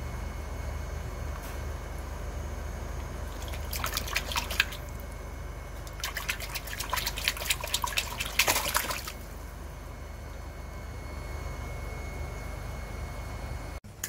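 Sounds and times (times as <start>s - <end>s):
steady low hum: 0.0s - 14.0s
water splashing in a tub: 3.2s - 5.2s, 5.8s - 9.5s.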